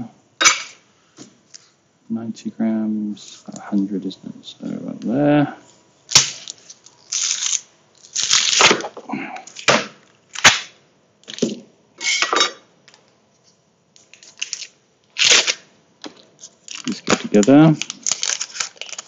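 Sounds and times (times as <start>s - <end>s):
wrapper rustling: 6.1s - 8.8s, 14.0s - 15.6s, 16.4s - 19.0s.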